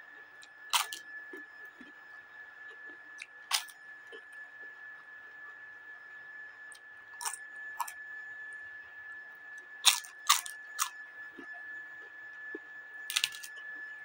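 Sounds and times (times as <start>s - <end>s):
papad crunching in mouth: 0.7s - 1.0s, 3.2s - 3.7s, 7.2s - 8.0s, 9.8s - 11.5s, 13.1s - 13.5s.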